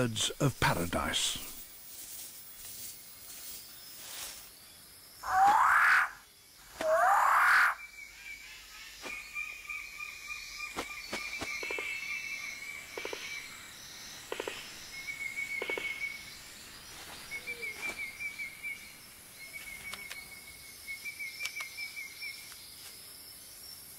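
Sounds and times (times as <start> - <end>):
insects trilling: 0.0 - 23.9
loud rising bird call: 5.2 - 7.9
bird clicks and snaps: 19.8 - 20.2, 21.4 - 21.8.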